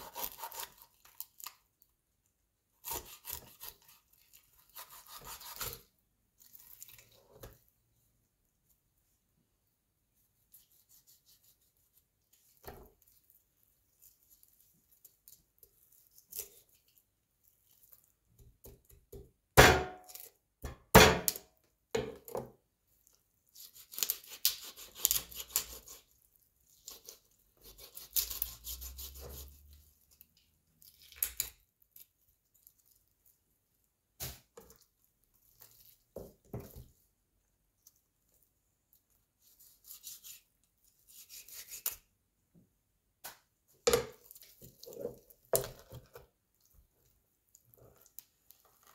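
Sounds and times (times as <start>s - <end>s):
knife chopping onto board: 19.6s - 21.4s.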